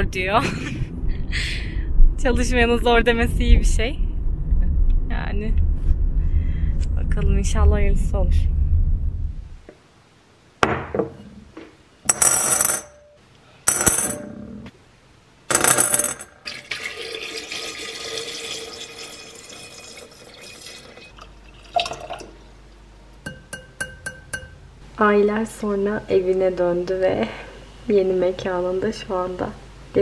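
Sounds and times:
water pouring into bowl: 16.5s - 22.4s.

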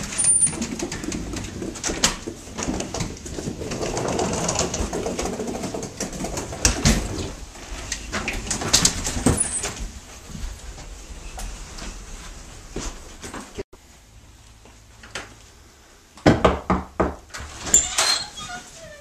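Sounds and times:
suitcase wheels rolling on wood: 0.0s - 13.6s
footsteps: 0.0s - 14.8s.

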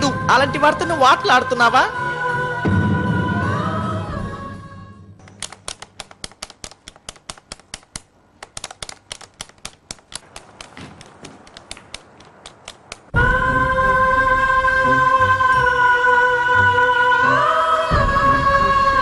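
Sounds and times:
background music: 0.0s - 6.4s, 13.1s - 19.0s.

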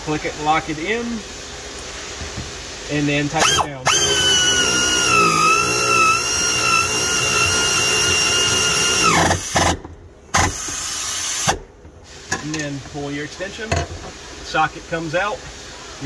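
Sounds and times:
air ratchet whine: 3.4s - 11.6s.

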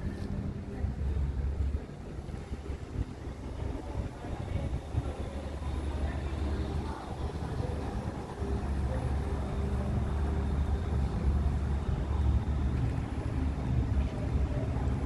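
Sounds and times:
electric bus driving away: 0.0s - 15.0s
faint steady hum: 0.0s - 15.0s.

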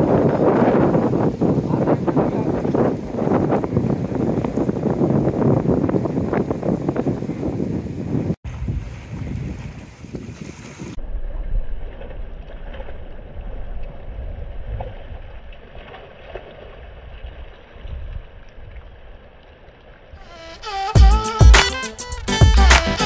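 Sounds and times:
waves washing against concrete: 0.0s - 4.7s, 20.2s - 23.0s
wind buffeting the microphone: 0.0s - 11.0s, 16.8s - 19.1s
loud music with heavy beat: 20.6s - 23.0s.

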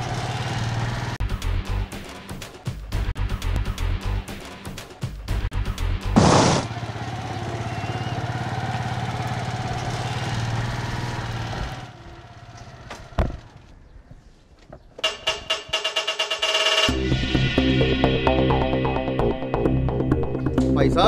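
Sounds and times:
auto-rickshaw engine idling: 0.0s - 1.2s, 6.2s - 14.0s
loud crash-like burst: 6.2s - 6.7s.

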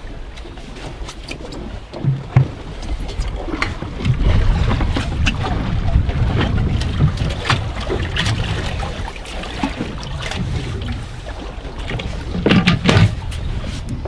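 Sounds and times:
wind and water rumble: 0.0s - 14.0s
fishing gear clicks and knocks: 12.3s - 14.0s.

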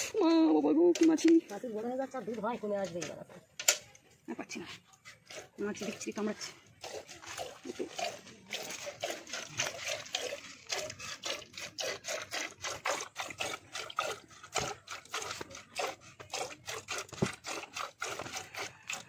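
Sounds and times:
milk squirting into metal pail: 4.8s - 19.0s.

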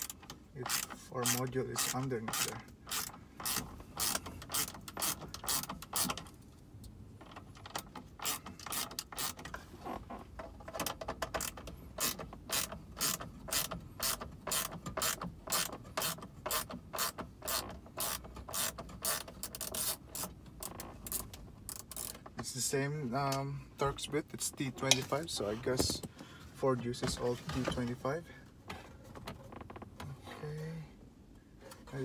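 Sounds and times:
hand ratchet clicking: 0.0s - 6.4s, 7.2s - 9.5s, 10.7s - 22.2s.

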